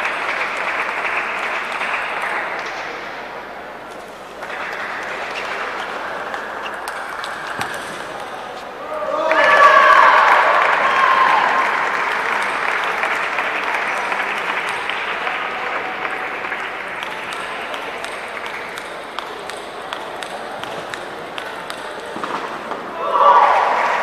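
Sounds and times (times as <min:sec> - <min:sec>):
spectators applauding: 0:00.0 - 0:02.9, 0:04.4 - 0:08.2, 0:09.2 - 0:21.7
table tennis balls bouncing: 0:03.9 - 0:08.7, 0:16.5 - 0:22.9.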